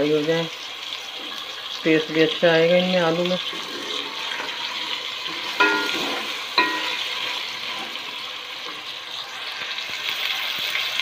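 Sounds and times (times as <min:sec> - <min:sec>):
potatoes sizzling in hot oil: 0:00.0 - 0:11.0
spatula clinking against pot: 0:05.4 - 0:07.3.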